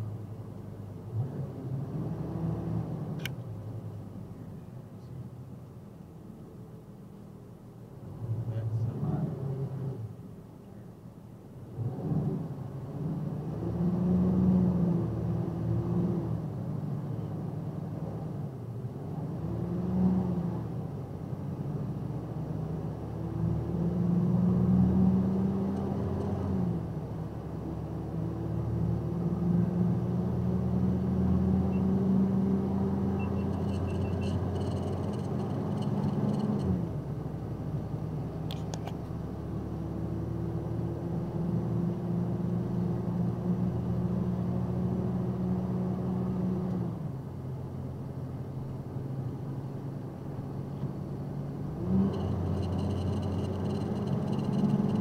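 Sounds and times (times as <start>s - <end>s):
truck engine accelerating: 21.6s - 55.0s.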